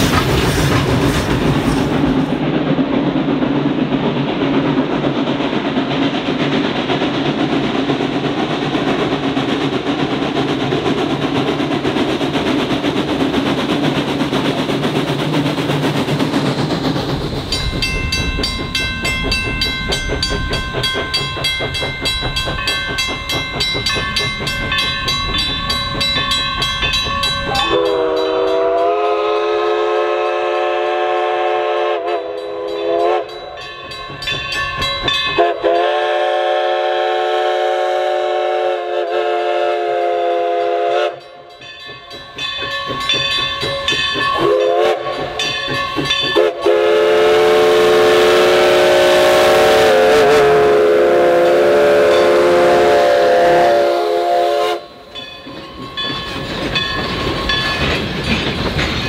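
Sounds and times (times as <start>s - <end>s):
steam locomotive rumble: 0.0s - 59.0s
chime steam whistle blasts: 24.7s - 56.1s.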